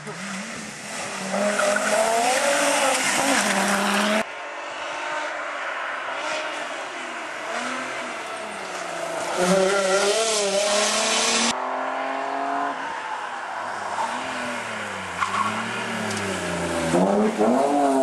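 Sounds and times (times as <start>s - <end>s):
rally car engine revving: 0.0s - 4.2s, 7.4s - 12.8s, 13.8s - 18.0s.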